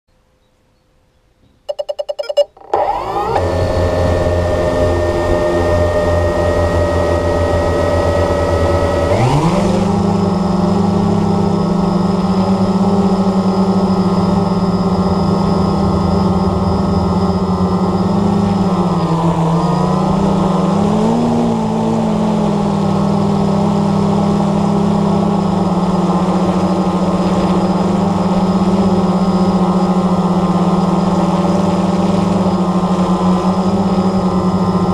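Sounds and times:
short beeps: 1.7s - 2.6s
drone motors and propellers buzzing: 1.7s - 34.9s.

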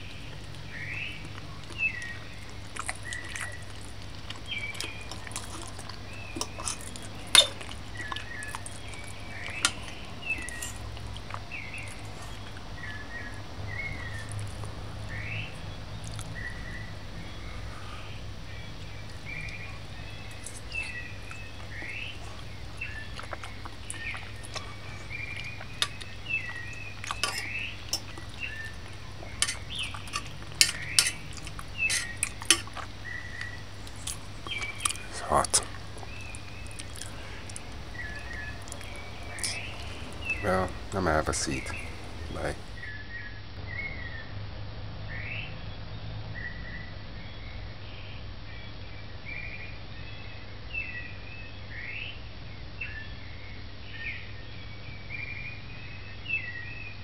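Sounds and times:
cutlery clinking on china plate: 25.8s - 28.3s, 29.4s - 32.8s.

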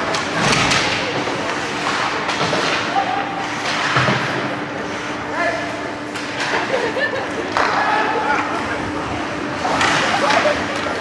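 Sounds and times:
hockey sticks and puck knocks: 0.0s - 4.5s, 6.1s - 6.7s, 7.5s - 8.4s, 9.6s - 11.0s.

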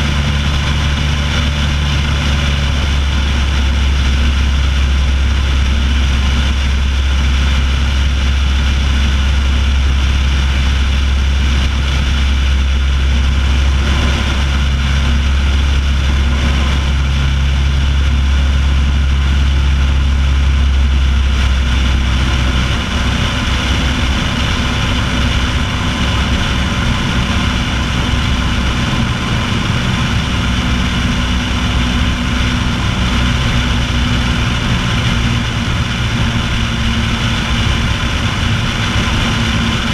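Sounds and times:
light aircraft engine droning: 0.0s - 39.9s
rushing airflow: 0.0s - 39.9s.

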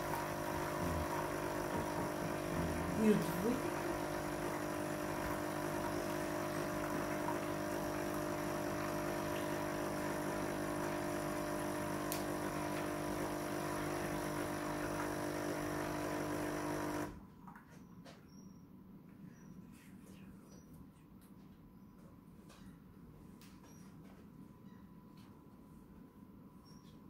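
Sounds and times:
coffee machine pump humming: 0.0s - 17.2s.

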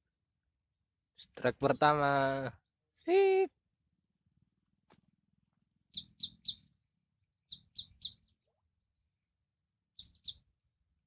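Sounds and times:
bird chirping: 5.5s - 8.9s, 9.7s - 11.0s.

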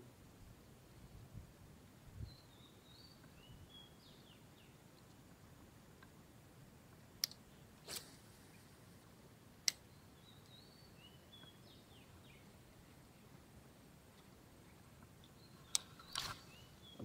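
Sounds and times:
faint bird chirps: 2.2s - 5.1s, 9.7s - 13.4s, 14.6s - 17.0s
sharp clicks: 9.6s - 9.8s.

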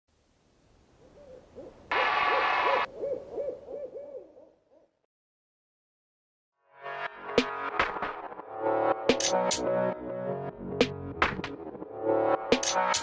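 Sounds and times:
owl hooting: 1.0s - 4.9s.

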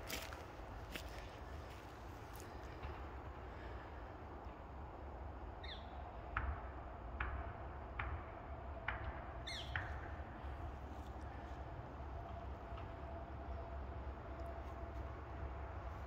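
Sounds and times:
footsteps on dry grass: 0.0s - 3.2s.

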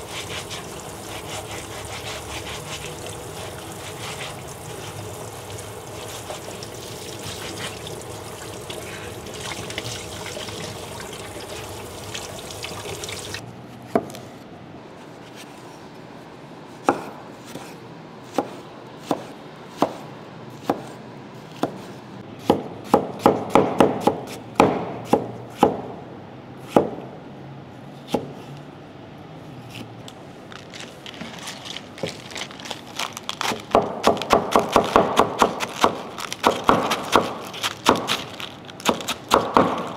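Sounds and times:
scrubbing potato with scouring pad: 0.0s - 13.4s
tap water running: 0.0s - 13.4s
knife chopping on wooden board: 16.8s - 20.0s, 20.6s - 25.9s, 33.4s - 39.9s.

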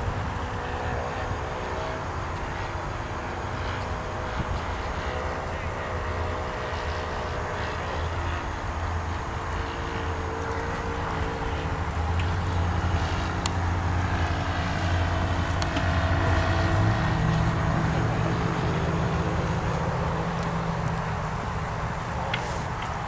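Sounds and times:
motor engine humming: 0.0s - 23.0s.

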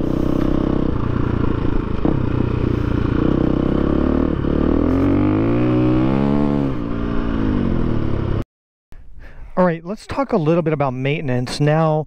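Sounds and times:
motorcycle engine revving: 0.0s - 8.4s.

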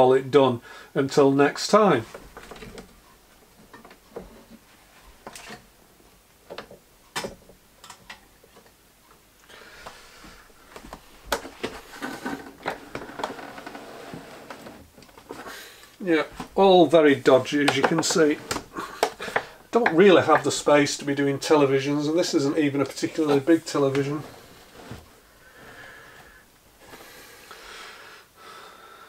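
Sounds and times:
rubbing and scraping: 11.4s - 15.6s, 16.2s - 27.0s
light clicks and knocks: 17.6s - 20.6s.

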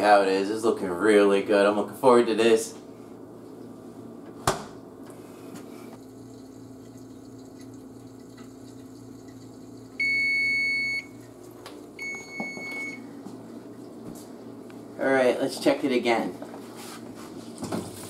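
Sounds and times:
steady low hum: 0.0s - 17.8s
oven timer beeps: 10.0s - 11.2s, 12.0s - 13.1s.

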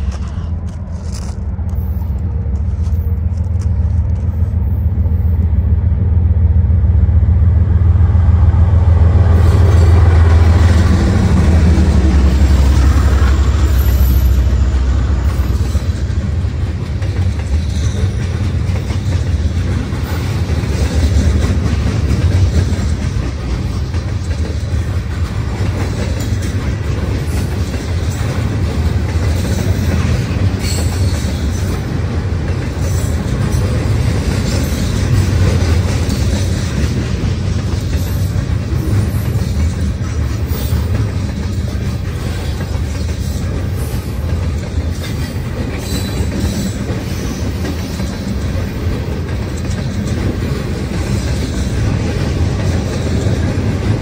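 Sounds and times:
locomotive deep rumble: 0.0s - 54.0s
train wheels clacking on rails: 6.6s - 54.0s.

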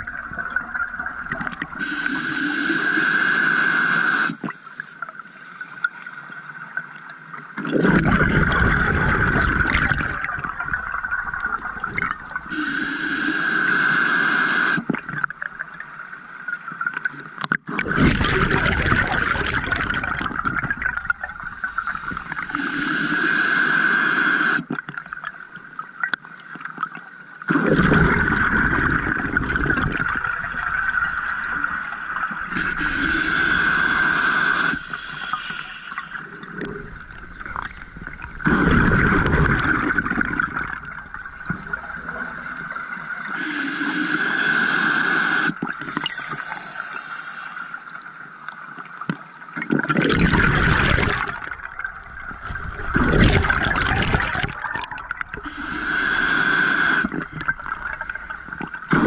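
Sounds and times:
regulator inhale hiss: 1.8s - 5.7s, 12.5s - 14.9s, 21.5s - 24.7s, 32.5s - 36.4s, 43.3s - 48.0s, 55.4s - 57.4s
exhaled bubbles rushing: 7.6s - 12.5s, 17.7s - 22.6s, 27.5s - 35.0s, 36.0s - 43.2s, 49.6s - 55.8s, 56.6s - 59.0s.

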